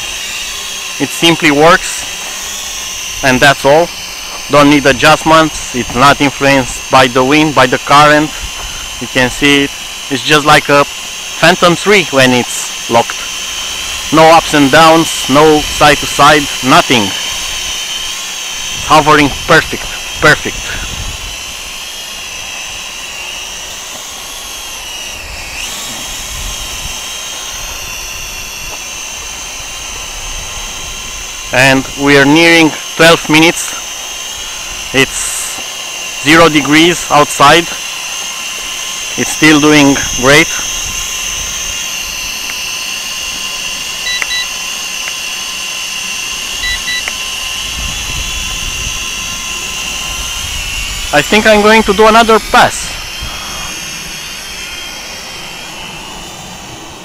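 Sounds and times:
quadcopter hovering whine: 0.0 - 57.0
wind rumble on microphone: 20.6 - 21.4, 47.6 - 51.1
electronic double beeps: 44.0 - 44.5, 46.6 - 47.1.

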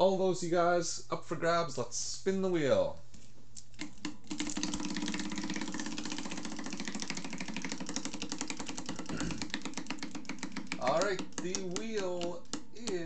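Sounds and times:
prize wheel clicking: 3.8 - 13.0.

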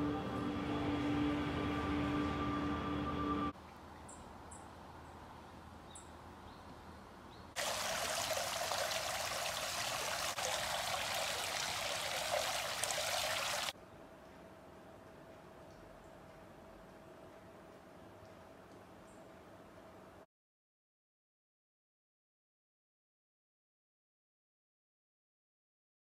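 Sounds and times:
water gushing and splashing: 7.6 - 13.7.

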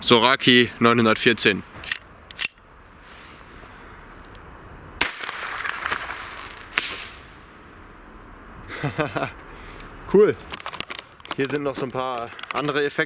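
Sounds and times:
burning flare hiss: 2.8 - 11.2
sharp gunshot: 5.0 - 7.3.

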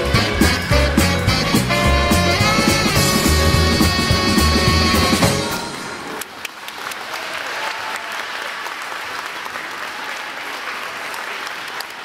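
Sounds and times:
performance music: 0.0 - 6.8
audience clapping: 6.1 - 12.0.

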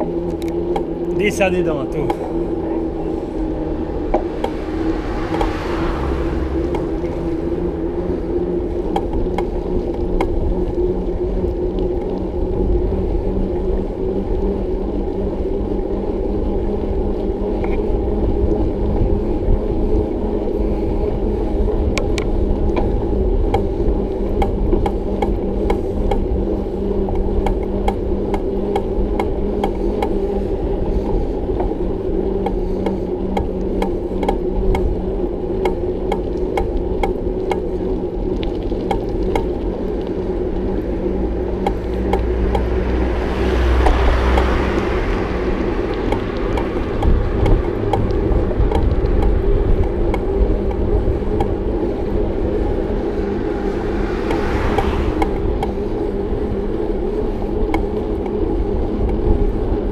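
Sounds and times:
bicycle clicks and rattles: 0.0 - 4.6, 6.6 - 59.9
bicycle tyres rumbling: 0.0 - 59.9
wind on microphone: 1.0 - 15.1, 15.7 - 59.9.

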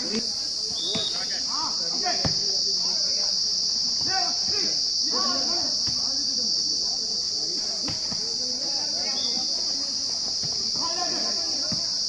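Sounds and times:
insects droning: 0.0 - 12.0
players shouting: 7.6 - 12.0.

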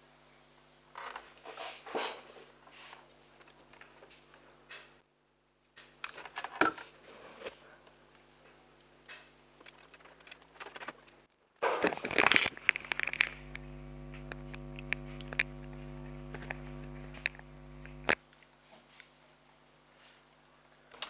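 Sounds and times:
steady low hum: 12.1 - 18.5.

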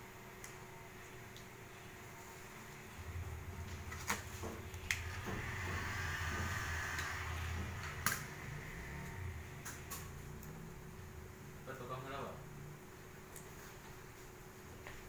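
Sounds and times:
steady low rumble: 2.1 - 13.1.

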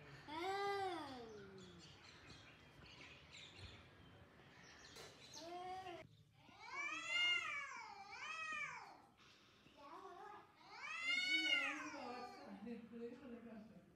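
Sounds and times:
cats yowling: 6.5 - 9.0, 10.7 - 12.3.

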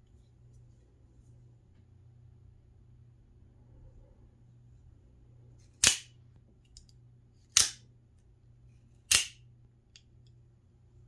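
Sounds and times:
spring-driven knife blade snapping: 7.5 - 7.8, 9.1 - 9.4.

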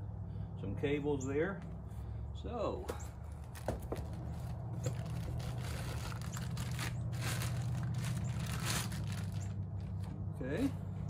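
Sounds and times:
steady low hum: 0.0 - 11.0
packaging rustling and crinkling: 3.5 - 10.1.

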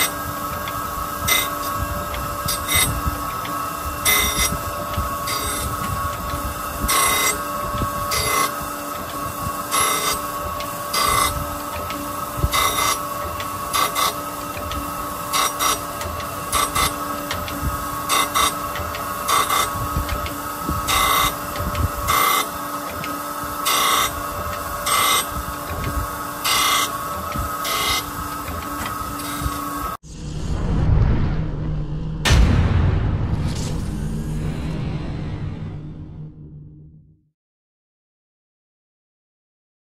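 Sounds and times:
grinding wheel on metal plate: 0.0 - 30.0.

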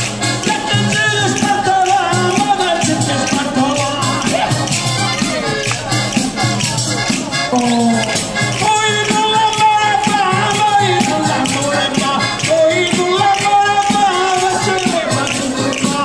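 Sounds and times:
jingling frame drum beat: 0.2 - 16.0
person singing held melody: 7.4 - 16.0.

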